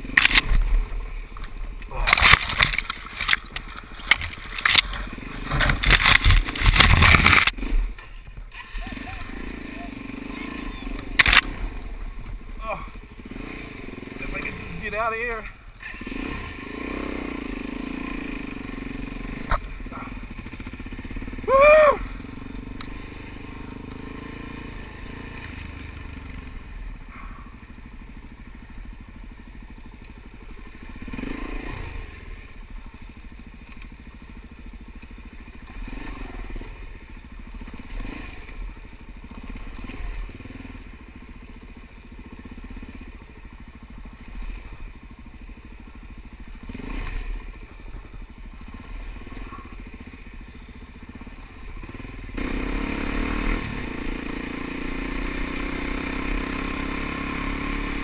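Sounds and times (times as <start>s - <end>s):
motorcycle engine running: 0.0s - 58.0s
tyres crunching over gravel: 1.3s - 7.6s
loud pitched shout-like sound: 21.4s - 22.2s.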